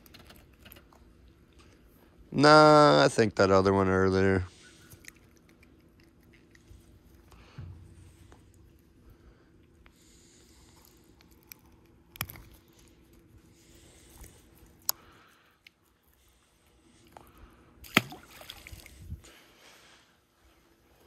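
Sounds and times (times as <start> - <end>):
clicks and rustles of handling: 0.0 - 1.9
faint steady hum: 0.0 - 21.0.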